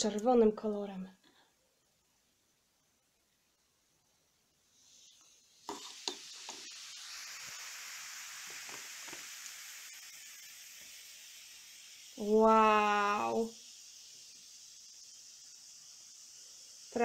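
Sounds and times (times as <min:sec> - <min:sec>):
fizzing bubbles hissing: 0:04.4 - 0:17.0.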